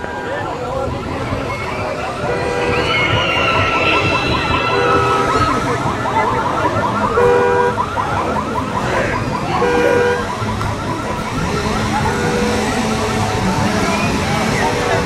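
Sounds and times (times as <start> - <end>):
car alarm rising whoop: 1.3 - 15.0
two-tone alarm beeps: 2.7 - 15.0.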